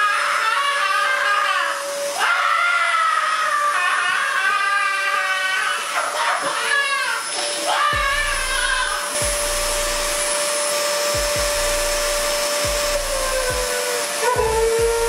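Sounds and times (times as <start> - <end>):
appliance motor whining: 0.0 - 15.0.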